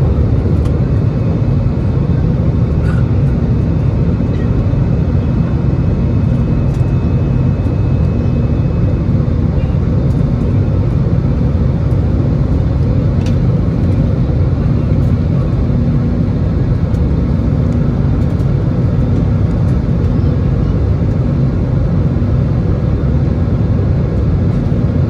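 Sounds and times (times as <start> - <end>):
airplane cabin drone: 0.0 - 25.0.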